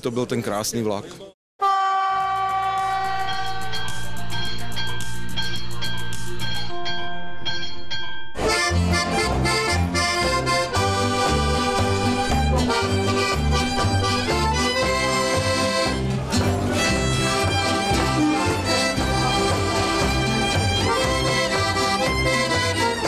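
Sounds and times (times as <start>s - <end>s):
accordion: 8.4s - 23.0s
acoustic guitar: 8.4s - 23.0s
plucked double bass: 8.4s - 23.0s
violin: 8.4s - 23.0s.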